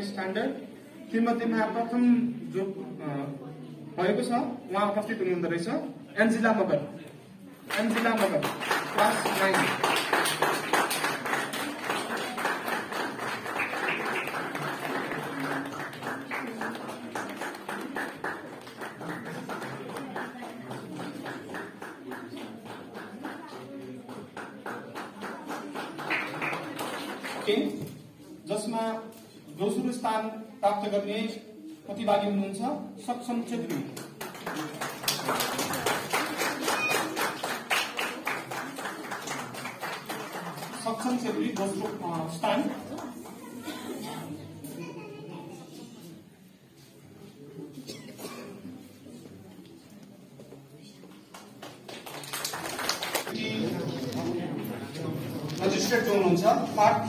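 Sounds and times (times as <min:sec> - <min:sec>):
audience applause: 0:07.7 - 0:27.5, 0:34.2 - 0:40.9, 0:51.4 - 0:53.4.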